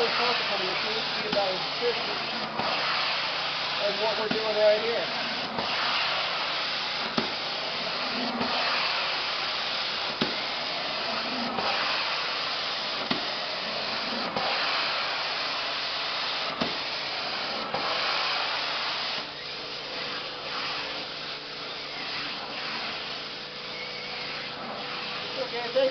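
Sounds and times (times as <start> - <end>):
carpet cleaning wand spray and suction: 0.0 - 25.9.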